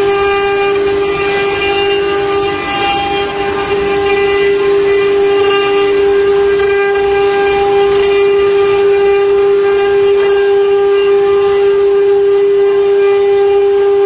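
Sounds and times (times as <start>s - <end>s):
router spindle motors whining: 0.0s - 14.0s.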